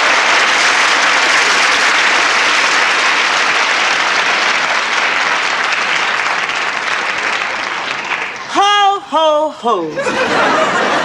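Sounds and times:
studio audience applauding: 0:00.0 - 0:08.7.

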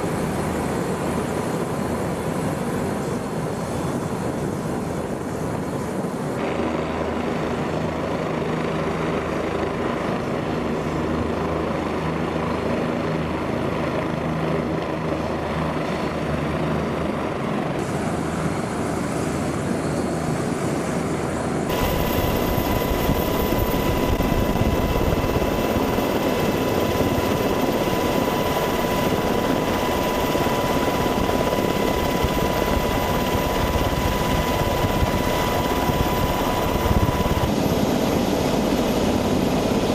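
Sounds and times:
helicopter engines and rotors droning: 0:00.0 - 0:39.9
helicopter high whine: 0:00.0 - 0:39.9.

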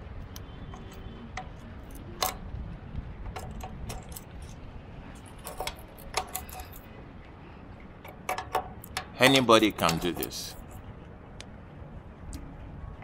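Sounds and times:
box spanner clinking on metal: 0:03.3 - 0:04.6, 0:05.2 - 0:06.9, 0:08.0 - 0:10.8.

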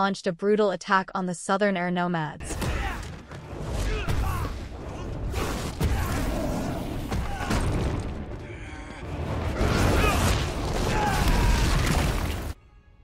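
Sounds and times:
people shouting: 0:02.5 - 0:03.2, 0:03.8 - 0:07.8, 0:09.5 - 0:12.4
dramatic soundtrack music: 0:03.3 - 0:13.0.

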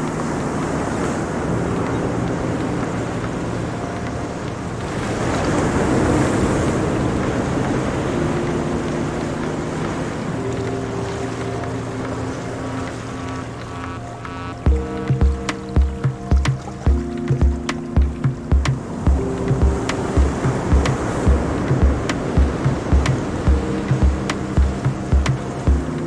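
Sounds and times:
soft held music notes: 0:00.0 - 0:26.0
surf breaking over rocks: 0:14.7 - 0:26.0.

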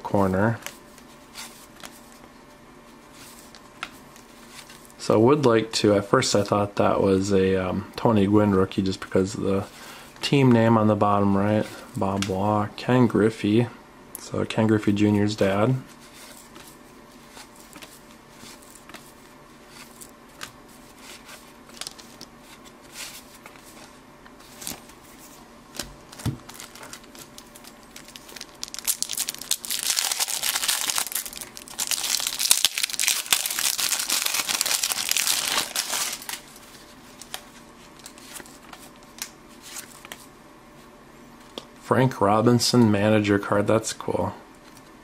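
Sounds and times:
cellophane wrapper crinkling: 0:26.1 - 0:38.5.

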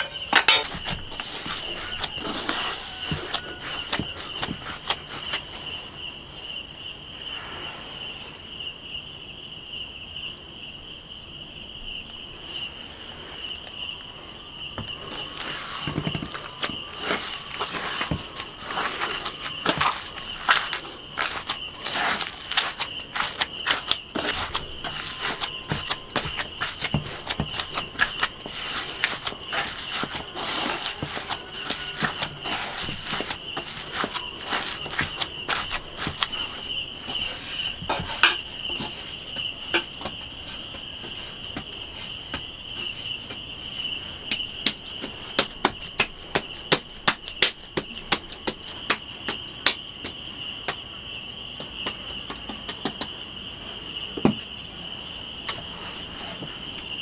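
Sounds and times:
hands kneading dough: 0:00.0 - 0:05.9, 0:14.6 - 0:53.4
insect chirring: 0:00.0 - 0:07.4, 0:08.0 - 0:55.7.

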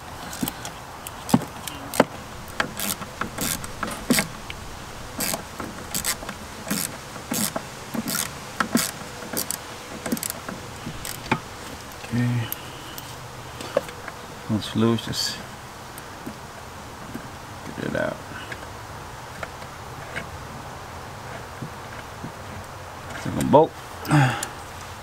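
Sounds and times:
ratchet clicking: 0:00.2 - 0:04.4, 0:05.1 - 0:13.1.

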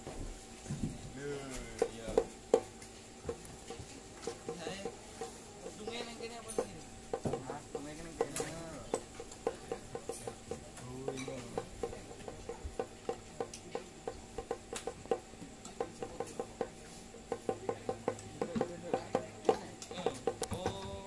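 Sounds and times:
hand drums tapped lightly: 0:01.8 - 0:21.0.

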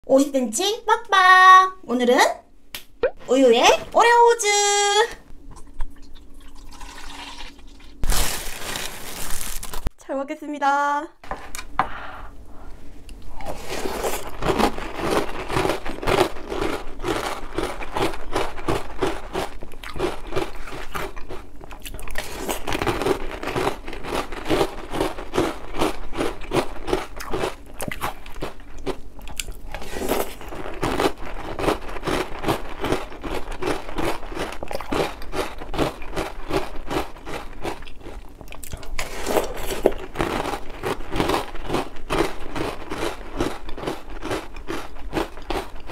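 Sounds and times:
cereal crunching while chewed: 0:08.0 - 0:09.9, 0:13.1 - 0:45.9.

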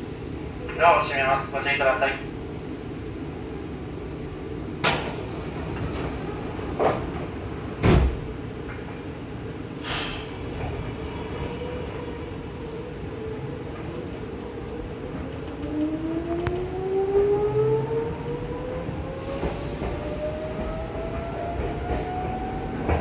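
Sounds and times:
train humming: 0:00.0 - 0:08.7, 0:09.4 - 0:23.0
train doors knocking: 0:04.8 - 0:09.0
train doors thumping shut: 0:04.8 - 0:09.0, 0:19.3 - 0:23.0.

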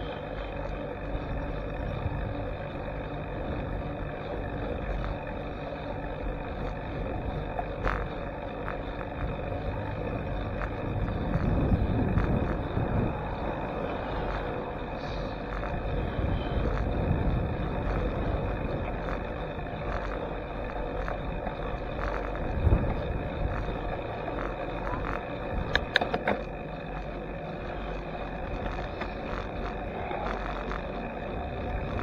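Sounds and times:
wind and road noise: 0:00.0 - 0:32.0
sharp rattling clicks: 0:00.3 - 0:32.0.

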